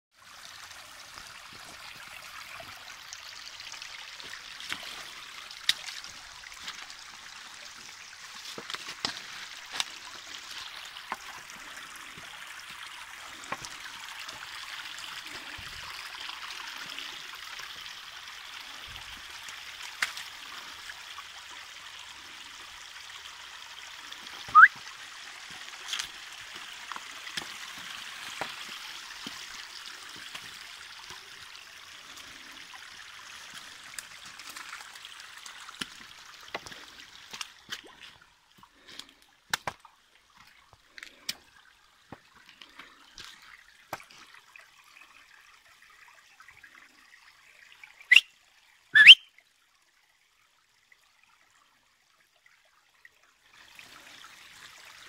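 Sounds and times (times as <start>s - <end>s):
stream trickling over stones: 0.1s - 55.0s
rising chirp: 49.0s - 49.2s.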